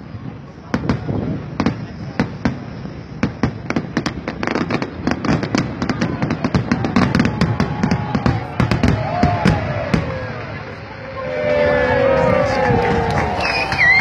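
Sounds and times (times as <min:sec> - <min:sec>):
fireworks bangs and crackling: 0:00.0 - 0:14.0
faint falling whistle: 0:13.2 - 0:14.0.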